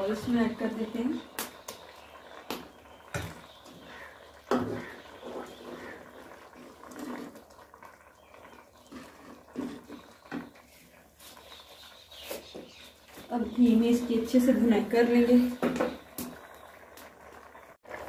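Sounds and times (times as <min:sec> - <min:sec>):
pot simmering: 0:00.0 - 0:18.0
faint distant calls: 0:01.2 - 0:07.3.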